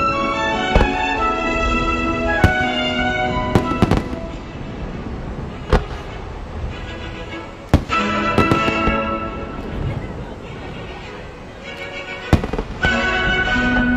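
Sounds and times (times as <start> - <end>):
orchestral music: 0.0 - 13.9
firework shells bursting: 7.7 - 9.7.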